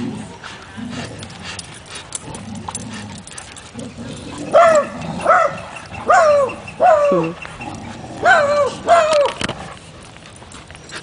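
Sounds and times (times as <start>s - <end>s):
dog yelping barks: 4.5s - 7.4s, 8.2s - 9.4s.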